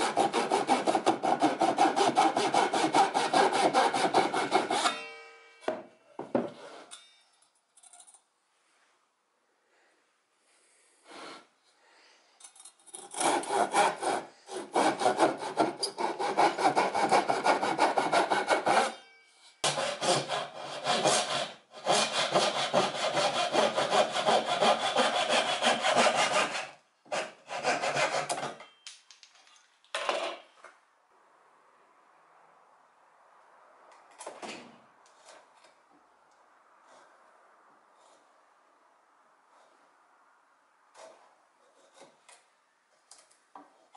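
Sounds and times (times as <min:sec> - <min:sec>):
handsaw rasping through wood: 0:00.0 - 0:05.0, 0:13.0 - 0:18.9, 0:19.6 - 0:28.4
short scrape: 0:06.5 - 0:07.0.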